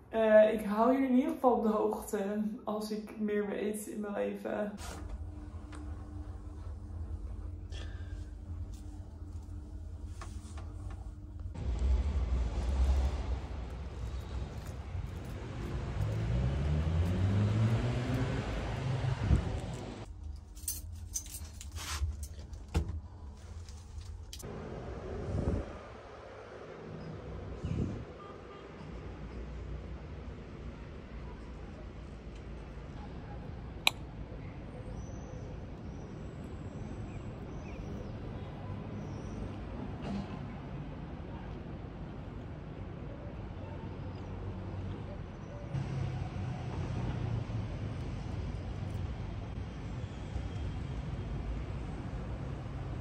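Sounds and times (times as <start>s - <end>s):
low rumble: 5.0s - 17.2s
vehicle engine accelerating: 11.6s - 20.1s.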